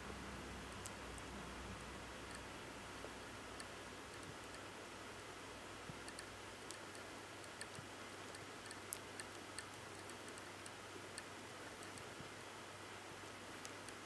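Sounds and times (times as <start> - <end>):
steady hiss: 0.0 - 14.0
kittens suckling clicks: 3.5 - 4.7, 5.9 - 12.2.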